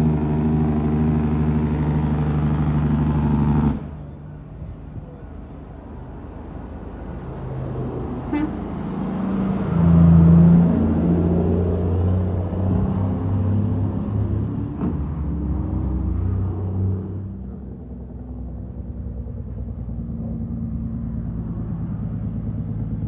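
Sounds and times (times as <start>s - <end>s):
low truck horn blast: 8.2s - 9.0s.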